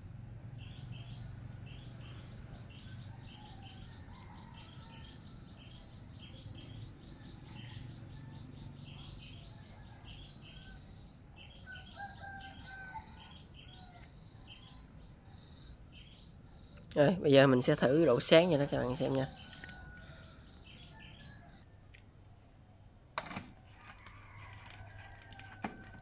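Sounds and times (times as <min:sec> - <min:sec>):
small birds chirping: 0:00.5 - 0:21.7
rooster crowing: 0:02.9 - 0:05.3, 0:11.6 - 0:14.1, 0:23.7 - 0:26.0.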